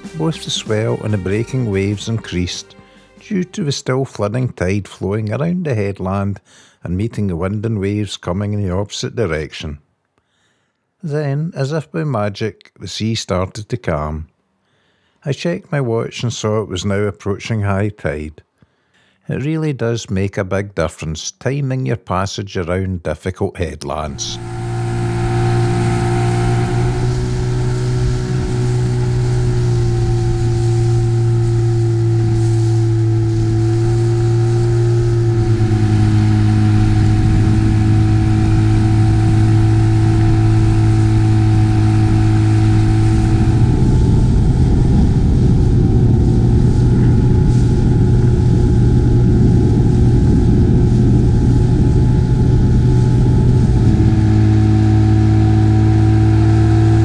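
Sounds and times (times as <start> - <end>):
rough rushing noise: 0.0 - 2.6, 23.9 - 57.0
outboard motor running: 24.0 - 57.0.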